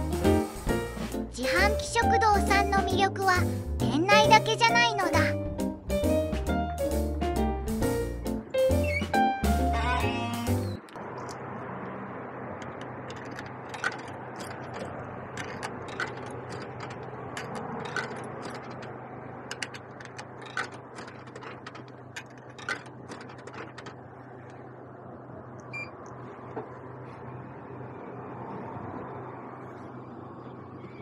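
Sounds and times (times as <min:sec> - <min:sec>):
electrical hum of machines: 0:10.6 - 0:31.0
coins clinking into slot: 0:15.4 - 0:23.9.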